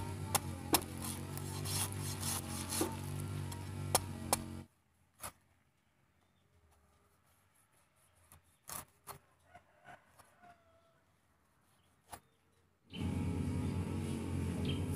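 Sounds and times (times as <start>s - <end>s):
knife scraping spiky fruit skin: 0.0s - 4.6s, 7.6s - 9.2s.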